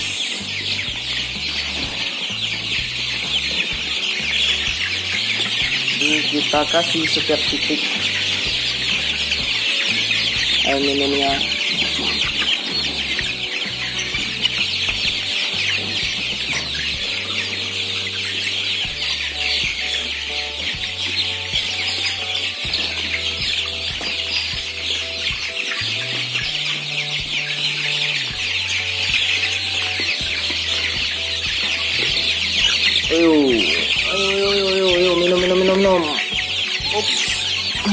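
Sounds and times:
chicks peeping: 0:00.0 - 0:37.9
low background music notes: 0:00.0 - 0:37.9.

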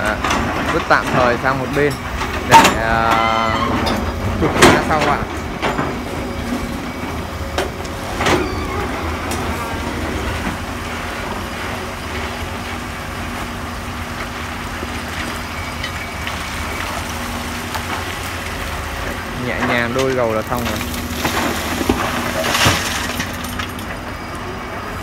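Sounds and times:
excavator diesel engine running: 0:00.0 - 0:25.0.

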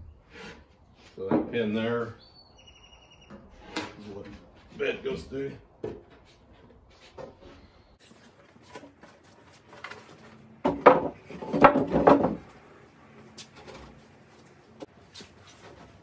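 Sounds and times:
wooden panels knocking and scraping: 0:00.3 - 0:01.7, 0:05.8 - 0:07.6, 0:08.3 - 0:12.7.

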